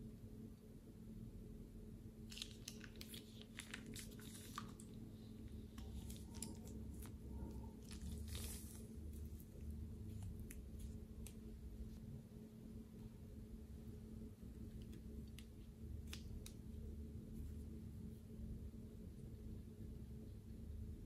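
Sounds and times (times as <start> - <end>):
faint low hum: 0.0 - 21.0
slime crackling and squishing: 2.3 - 11.6.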